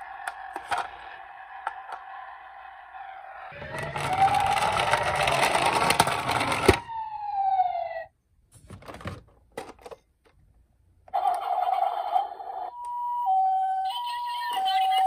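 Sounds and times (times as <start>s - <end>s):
electronic toy siren: 0.0s - 8.1s, 11.2s - 15.0s
toy siren whirring: 0.0s - 8.1s, 11.1s - 15.0s
toy cars clattering in a box: 3.6s - 6.8s.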